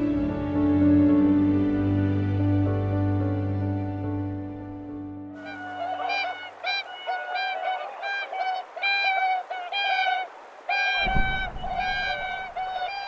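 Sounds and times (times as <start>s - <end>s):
swans honking: 5.4s - 13.0s
low rushing noise: 11.0s - 12.9s.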